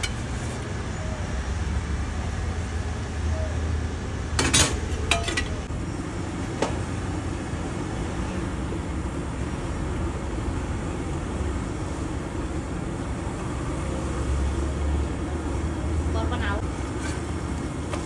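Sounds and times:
bread frying on a griddle: 16.8 - 18.0.

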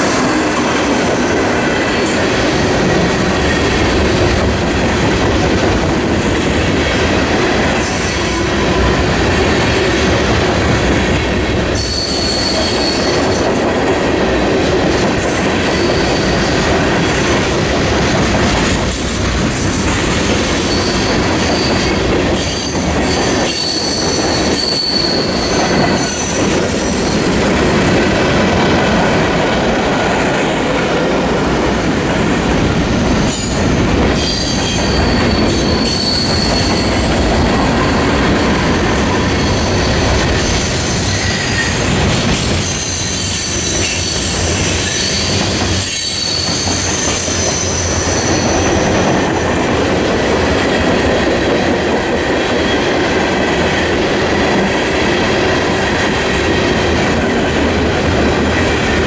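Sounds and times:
rumble of train wheels on rail: 0.0 - 59.0
high wheel squeals: 11.8 - 13.4, 20.5 - 26.4, 33.3 - 49.3.

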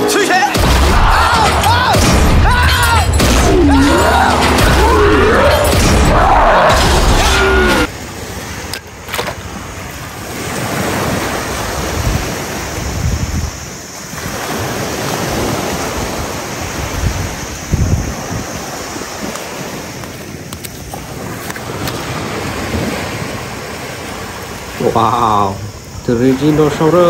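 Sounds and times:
waves breaking on beach: 7.5 - 27.0
wind buffeting microphone: 10.2 - 24.7.

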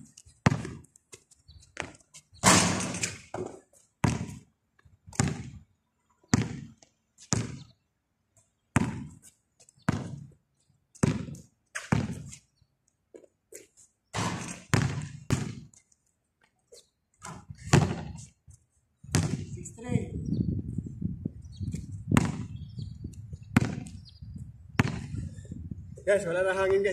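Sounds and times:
basketball bouncing on concrete: 0.1 - 0.9, 1.8 - 4.5, 5.1 - 5.6, 6.3 - 7.7, 8.8 - 9.2, 9.9 - 10.4, 11.0 - 12.4, 14.2 - 15.8, 17.2 - 18.3, 19.1 - 19.6, 21.8 - 22.6, 23.5 - 24.0, 24.8 - 25.2.

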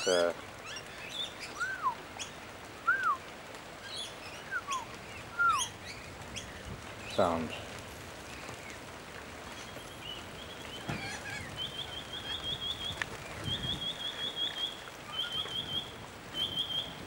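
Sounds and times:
steady rain: 0.0 - 17.0
bird calling high repeated notes: 1.4 - 3.2, 3.9 - 6.0.

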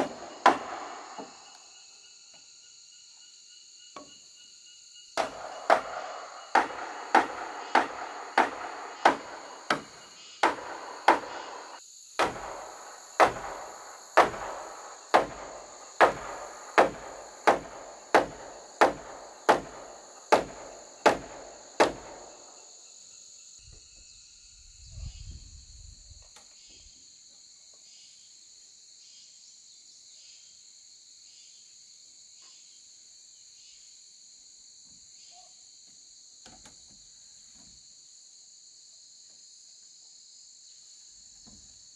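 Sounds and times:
hammer striking wood: 0.0 - 1.4, 5.2 - 22.2
insects chirring: 0.0 - 41.9.

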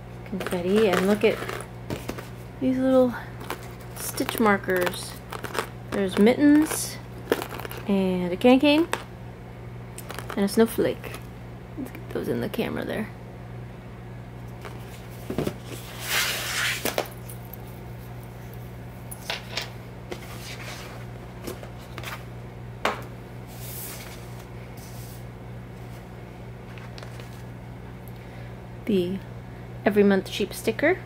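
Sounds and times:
steady low hum: 0.0 - 31.0
wrapping rustling: 0.3 - 7.9, 10.0 - 11.2.

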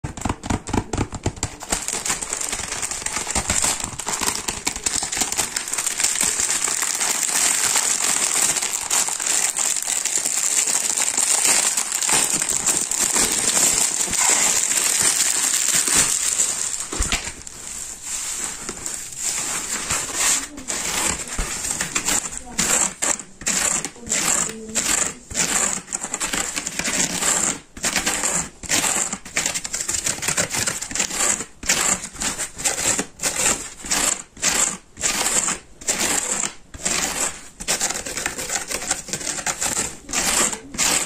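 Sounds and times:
cellophane wrapper crinkling: 0.1 - 23.2
fingers rubbing dry sponge: 0.1 - 41.0.

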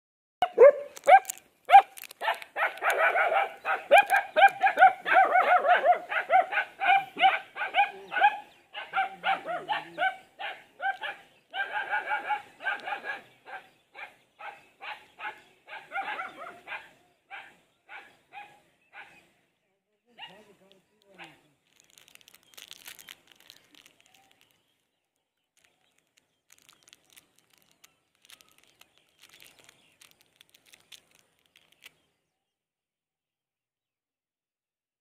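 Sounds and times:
dogs barking: 0.4 - 19.2, 21.1 - 21.4.

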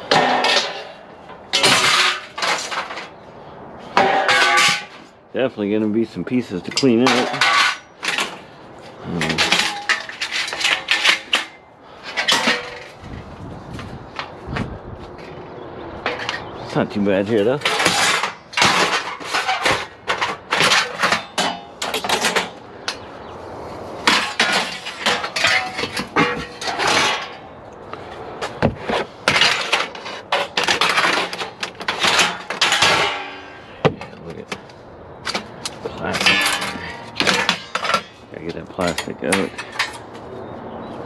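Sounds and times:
aluminum lengths clattering: 0.0 - 3.2, 3.8 - 5.2, 6.3 - 13.0, 16.0 - 23.1, 24.0 - 40.2
metallic ringing: 32.1 - 34.1.

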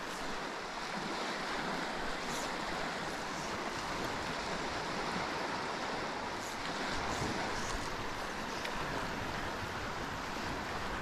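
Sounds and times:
river water rushing: 0.0 - 11.0.

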